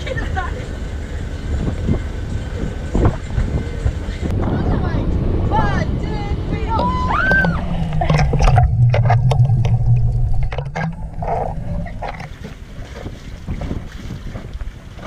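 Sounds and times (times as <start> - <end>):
low steady drone: 0.0 - 12.8
wind: 0.0 - 15.0
underwater splashing and bubbles: 7.4 - 15.0.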